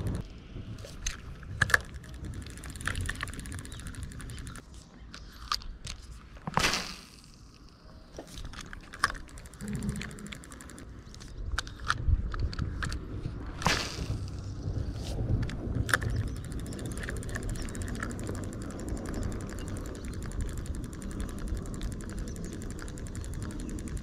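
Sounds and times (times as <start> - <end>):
light mechanical clicks and rattles: 0.8 - 6.2, 7.3 - 13.0, 15.3 - 24.0
fast ticking: 1.8 - 4.6, 9.0 - 10.8, 15.9 - 24.0.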